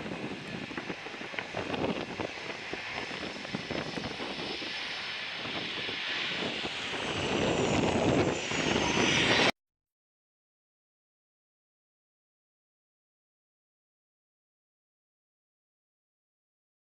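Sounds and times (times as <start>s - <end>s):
wind buffeting microphone: 0.0s - 9.5s
jet engines rumbling and whining: 0.0s - 9.6s.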